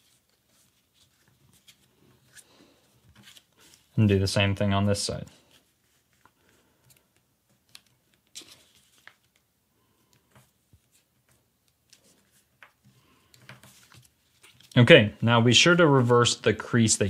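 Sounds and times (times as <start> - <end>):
paper rustling and crinkling: 0.0 - 4.0, 5.4 - 9.5, 10.2 - 14.8.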